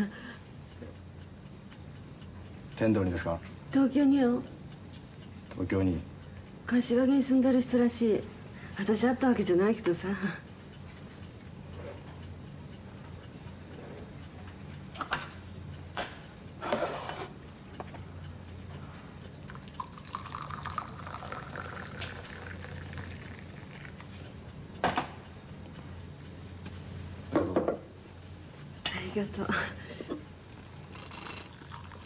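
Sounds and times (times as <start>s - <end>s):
liquid pouring into a cup: 19.5s - 24.0s, 31.0s - 32.0s.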